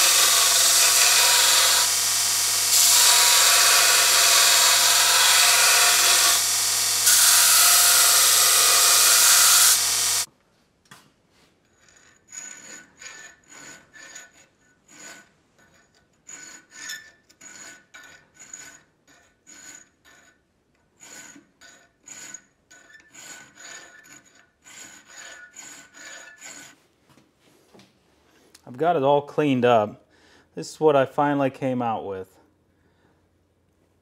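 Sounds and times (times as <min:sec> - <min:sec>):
hand file rasping on metal: 0:00.0 - 0:10.3, 0:11.8 - 0:26.8.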